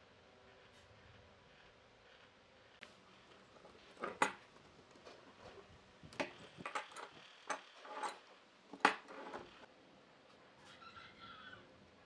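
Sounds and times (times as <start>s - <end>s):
metal clamps clicking and knocking: 6.1s - 9.5s.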